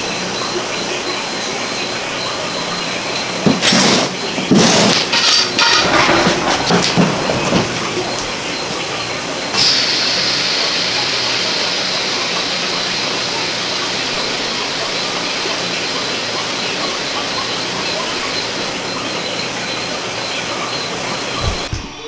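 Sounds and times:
hydraulic lift hissing: 0:07.4 - 0:21.7.

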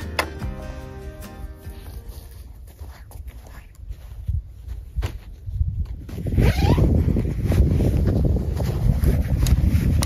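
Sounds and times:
wind buffeting microphone: 0:03.8 - 0:10.0.

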